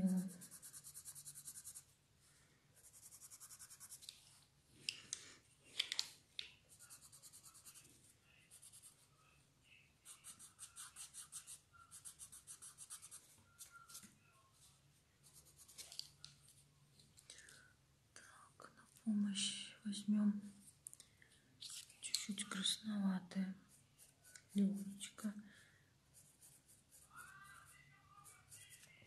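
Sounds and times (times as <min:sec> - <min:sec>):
pencil shading strokes on paper: 0:00.0 - 0:01.9, 0:02.8 - 0:04.1, 0:06.7 - 0:09.1, 0:10.0 - 0:14.0, 0:23.6 - 0:25.2, 0:26.1 - 0:29.0.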